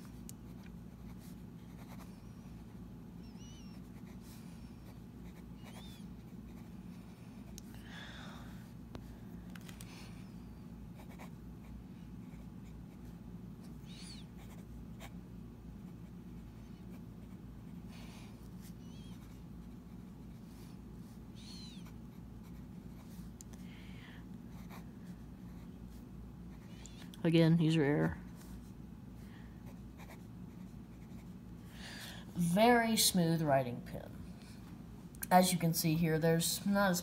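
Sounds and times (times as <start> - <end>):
steady low hum: 0.0 - 37.0
fountain pen scratching on paper: 0.5 - 2.7, 3.8 - 6.7, 11.0 - 11.3.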